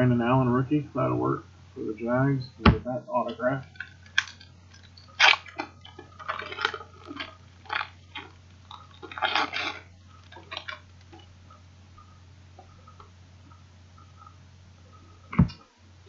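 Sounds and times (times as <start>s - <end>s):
foil wrapper crinkling: 3.6s - 11.3s.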